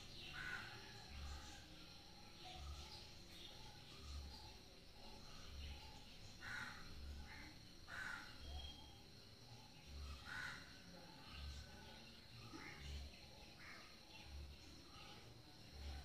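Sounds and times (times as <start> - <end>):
distant animal calls: 6.4 - 8.5.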